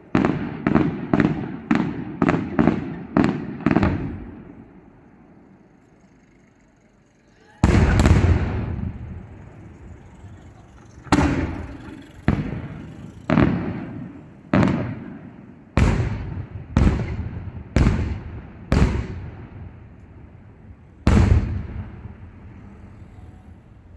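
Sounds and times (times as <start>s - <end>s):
rolling echo: 0.0s - 23.9s
firework shells bursting: 7.6s - 22.8s.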